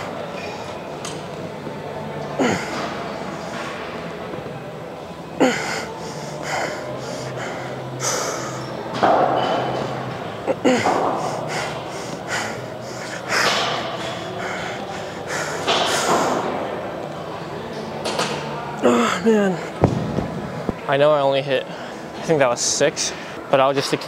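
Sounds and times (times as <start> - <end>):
person breathing forcefully: 5.4 - 8.7, 10.6 - 16.4.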